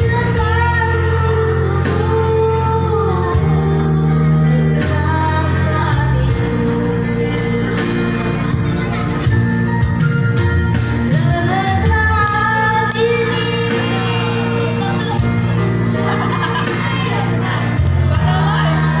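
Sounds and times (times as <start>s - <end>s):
sustained bass line: 0.0s - 19.0s
person singing: 11.1s - 15.5s.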